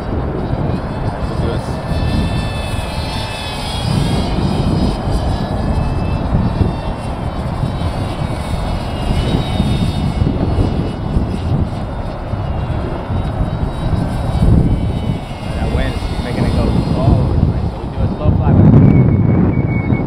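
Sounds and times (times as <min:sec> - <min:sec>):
propeller motor whining: 0:00.0 - 0:20.0
wind rumble on microphone: 0:00.0 - 0:20.0.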